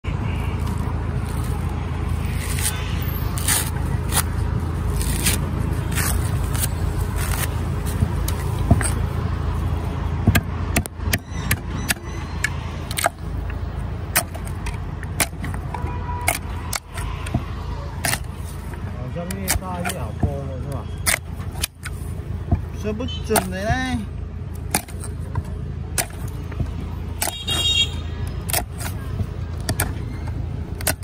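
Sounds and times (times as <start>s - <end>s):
coconut husk tearing and scraping: 0.5s - 9.8s, 14.1s - 22.2s, 28.3s - 31.0s.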